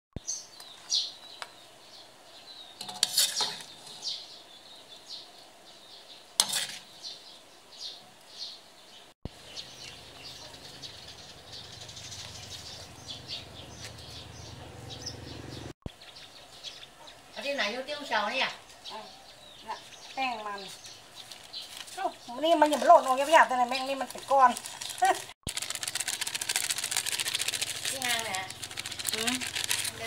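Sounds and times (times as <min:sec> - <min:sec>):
metal spoon scraping a wok: 0:02.8 - 0:04.2, 0:06.4 - 0:06.9
bird chirps: 0:06.9 - 0:17.7.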